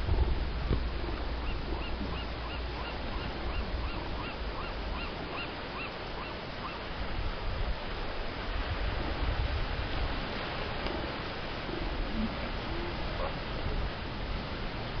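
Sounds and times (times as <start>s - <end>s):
surf: 0.0s - 15.0s
wind noise: 0.0s - 15.0s
animal high-pitched calls: 1.4s - 6.8s.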